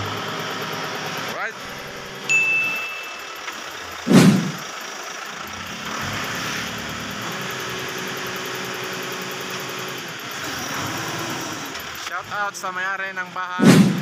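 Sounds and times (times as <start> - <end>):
diesel engine running: 0.0 - 14.0
steady hum: 2.3 - 4.6
loud thump: 4.1 - 4.6, 13.6 - 14.0.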